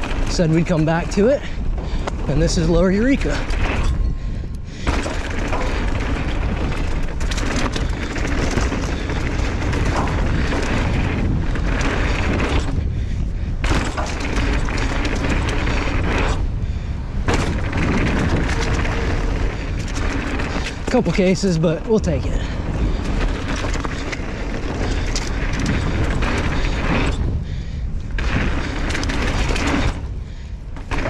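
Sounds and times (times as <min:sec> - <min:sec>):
bike tyres rattling on dirt: 0:00.0 - 0:31.0
wind buffeting microphone: 0:00.0 - 0:31.0
bike landing thud: 0:03.2 - 0:21.0.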